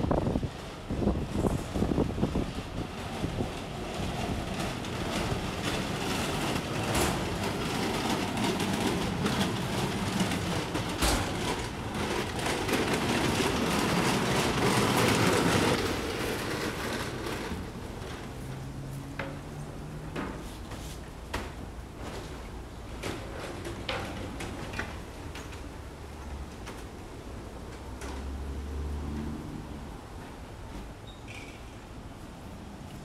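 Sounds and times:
passing vehicle rumbling: 11.1 - 20.4, 27.6 - 30.7.

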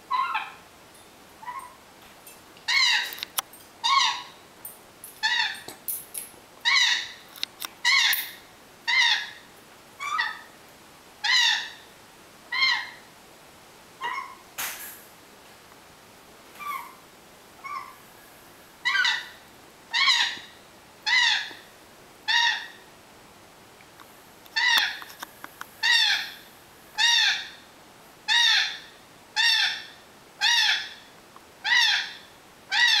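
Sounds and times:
parrot hooting calls: 0.1 - 0.6, 1.4 - 1.8, 2.7 - 4.4, 5.2 - 5.7, 7.8 - 9.4, 10.0 - 10.5, 11.2 - 11.8, 12.5 - 13.1, 14.0 - 14.5, 16.6 - 17.0, 17.6 - 18.0, 18.8 - 21.6, 22.3 - 22.8, 24.6 - 25.1, 25.8 - 26.4, 27.0 - 27.6, 28.3 - 31.0, 31.6 - 33.0.

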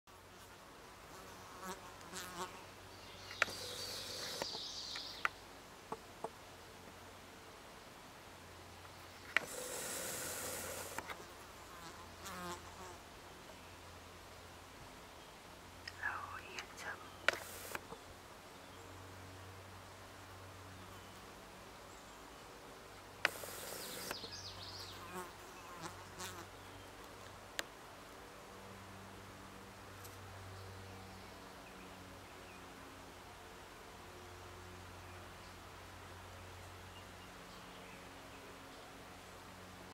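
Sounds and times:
flying insects buzzing: 0.2 - 5.3, 9.1 - 13.0, 15.9 - 18.0, 23.2 - 26.5
sharp clicks: 16.6 - 17.8, 23.2 - 24.2.

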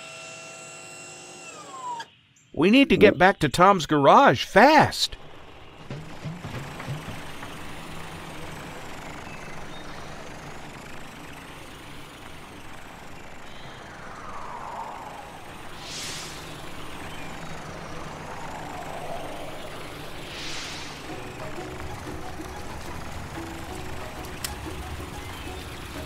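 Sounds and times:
cartoon truck engine running: 2.8 - 14.0, 16.8 - 26.0
whooshing sweeps: 13.4 - 22.4.

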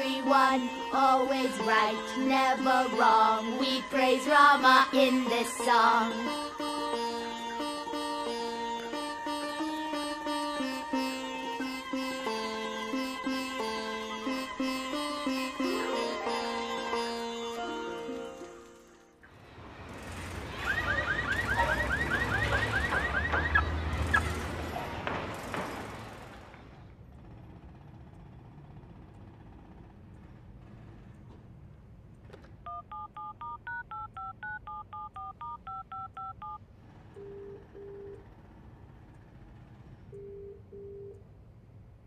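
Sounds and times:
traffic rumble: 19.3 - 42.0
car alarm chirping: 20.6 - 24.3, 32.7 - 36.6
telephone ringing tone: 32.7 - 36.6, 37.2 - 38.3
touch-tone dialing beeps: 32.7 - 36.6, 37.2 - 38.2.

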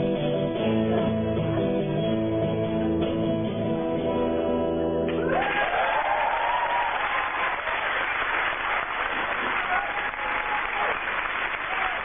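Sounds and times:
audience applause and cheering: 5.1 - 12.0.

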